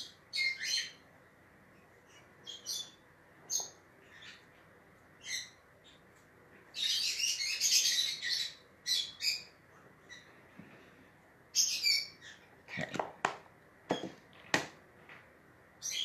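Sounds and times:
bird chirping: 0.0 - 1.1, 1.7 - 10.4, 11.5 - 12.5, 15.8 - 16.0.

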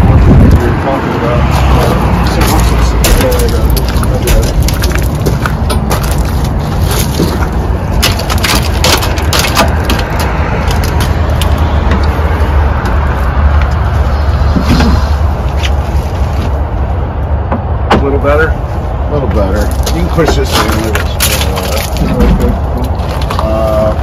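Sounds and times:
steady low rumble: 0.0 - 24.0
clicks and knocks in tractor cab: 3.0 - 12.2.

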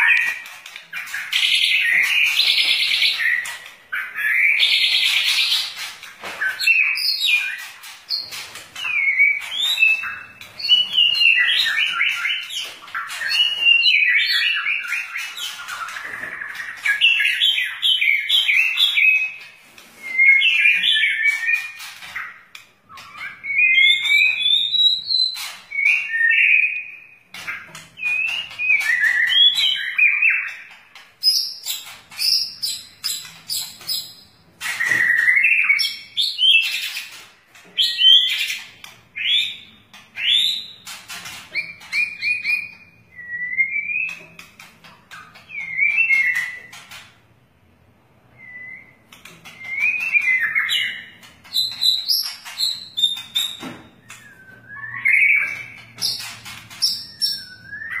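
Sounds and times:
songbird whistling and chattering: 20.0 - 37.1, 45.1 - 46.8, 48.4 - 58.0.

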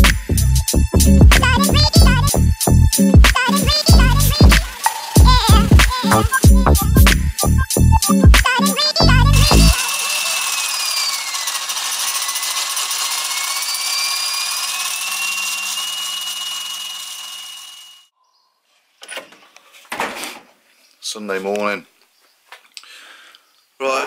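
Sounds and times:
small motor whirring: 3.5 - 7.0, 8.7 - 18.1.

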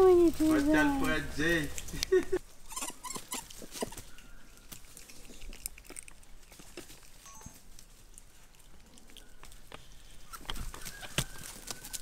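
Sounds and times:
leaves rustling: 0.0 - 12.0
twigs clicking: 3.1 - 12.0.

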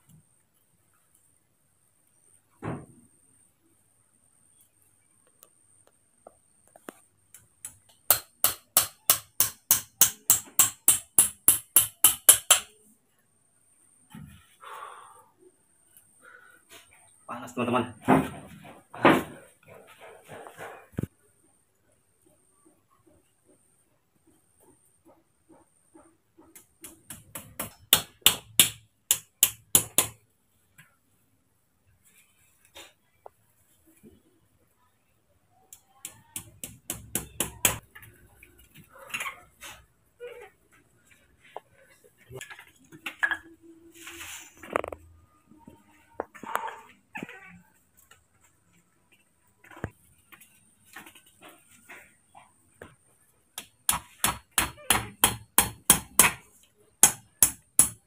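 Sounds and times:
hammer striking bamboo: 7.6 - 12.8, 26.8 - 30.2, 36.0 - 37.8, 53.6 - 56.4, 57.0 - 58.0.

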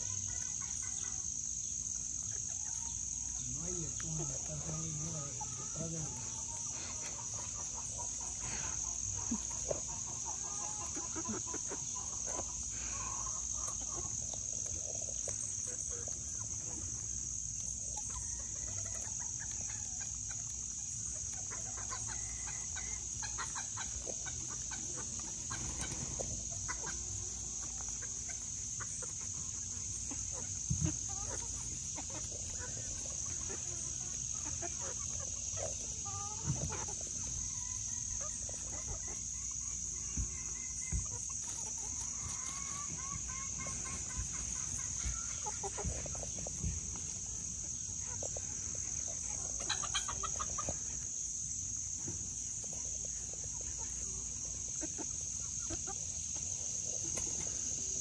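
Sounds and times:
hens clucking: 0.0 - 58.0
high-pitched insect drone: 0.0 - 58.0.

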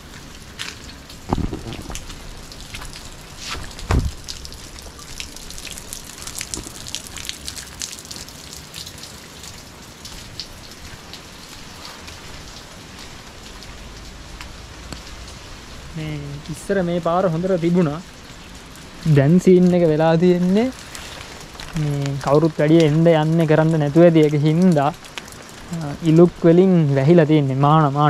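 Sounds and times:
wet grass rustling: 0.0 - 15.8, 16.6 - 26.5
dull thuds: 3.4 - 4.3.

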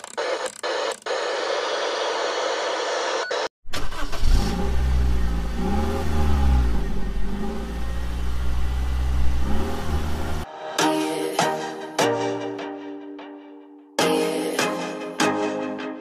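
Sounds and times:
engine idling and revving: 3.8 - 10.5.

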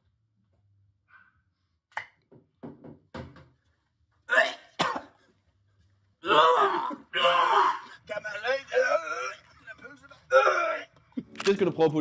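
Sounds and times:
man coughing: 4.3 - 5.2.

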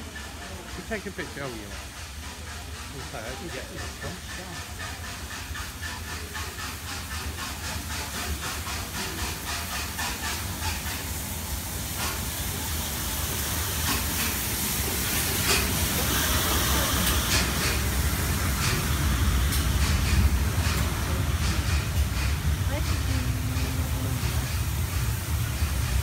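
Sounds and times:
steam locomotive hissing and chuffing: 0.0 - 26.0.

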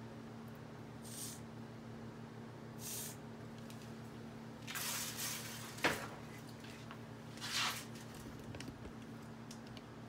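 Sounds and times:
faint steady hum: 0.0 - 10.0
short hissing bursts: 1.0 - 1.5, 2.8 - 3.2.

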